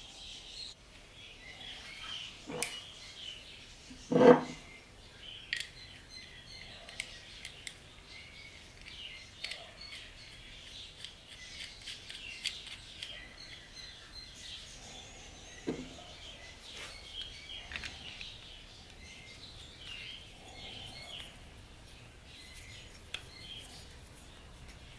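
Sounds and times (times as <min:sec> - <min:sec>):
faint birdsong: 0:00.0 - 0:24.9
small metal clicks and taps: 0:05.5 - 0:05.8.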